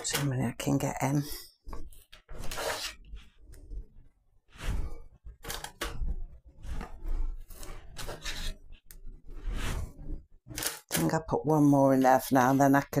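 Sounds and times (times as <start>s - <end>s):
cutter scraping through dough: 6.6s - 10.7s.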